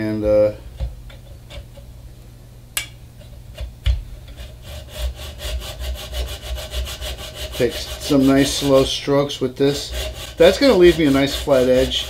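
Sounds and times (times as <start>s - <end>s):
hacksaw cutting brass: 4.4s - 8.8s, 9.7s - 12.0s.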